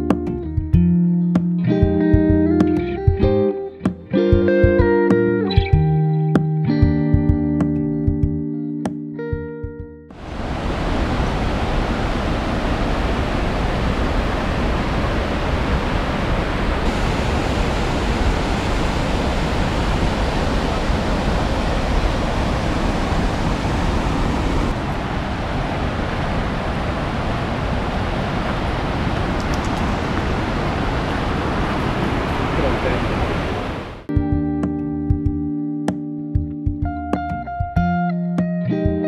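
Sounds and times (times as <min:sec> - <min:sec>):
river water rushing through rapids: 0:10.2 - 0:34.1.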